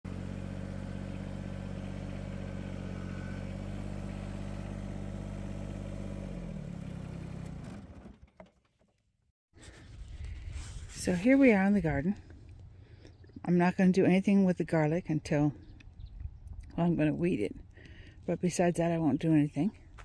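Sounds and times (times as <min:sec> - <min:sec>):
tractor engine running: 0:00.1 - 0:08.7.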